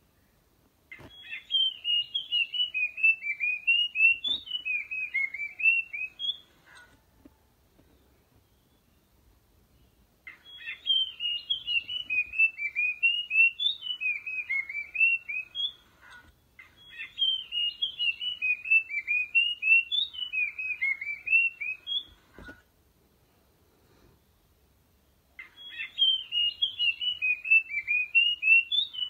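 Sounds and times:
babbler whistled song: 0:00.9 - 0:06.9, 0:10.3 - 0:22.6, 0:25.4 - 0:29.0.

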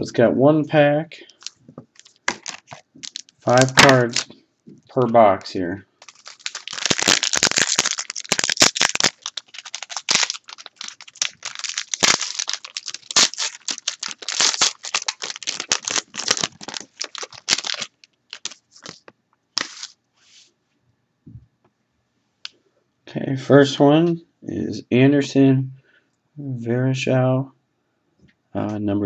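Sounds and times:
foil wrapper tearing and crinkling: 0:01.4 - 0:04.3, 0:06.0 - 0:20.0.

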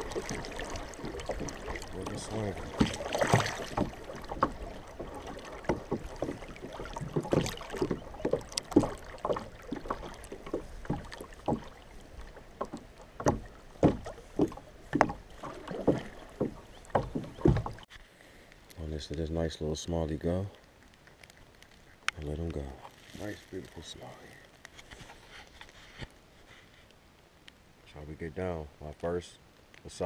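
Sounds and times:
knocks on hull: 0:00.0 - 0:11.8, 0:12.6 - 0:17.8
rushing water: 0:00.0 - 0:17.9
water splashing against kayak hull: 0:00.0 - 0:17.9.

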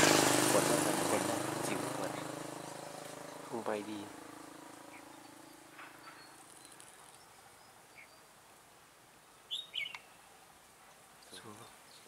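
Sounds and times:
bird chirps: 0:01.2 - 0:08.4, 0:09.4 - 0:10.4.

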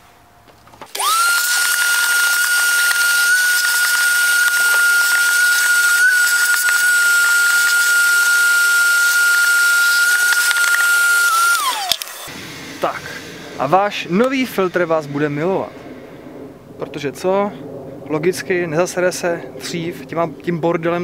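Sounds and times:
vacuum cleaner whining: 0:00.8 - 0:15.7.

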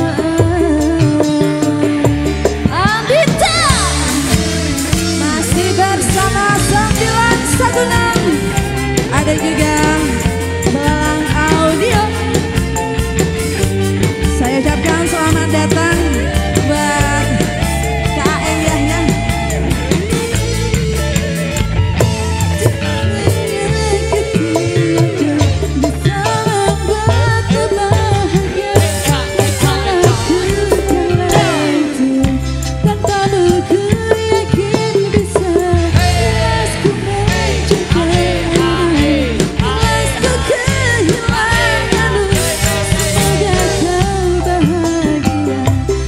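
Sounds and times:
band music: 0:00.0 - 0:46.0
drums keeping steady beat: 0:00.0 - 0:46.0
wavering melody line: 0:02.7 - 0:33.5.

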